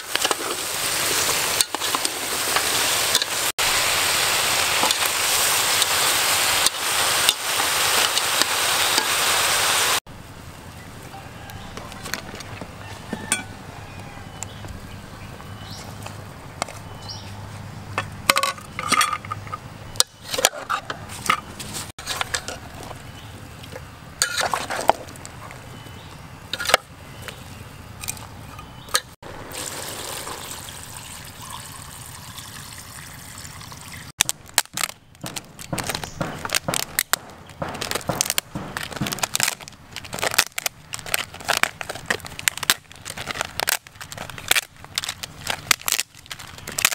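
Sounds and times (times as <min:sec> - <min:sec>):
metal ladle scraping a pot: 0:20.2 - 0:22.8, 0:24.2 - 0:25.0
liquid being poured: 0:29.3 - 0:34.1.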